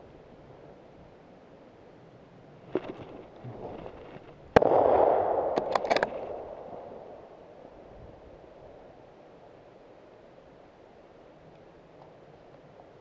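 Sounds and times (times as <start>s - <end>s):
rustling: 2.6s - 4.6s
rifle shot: 4.5s - 7.7s
sharp clicks: 5.4s - 6.5s.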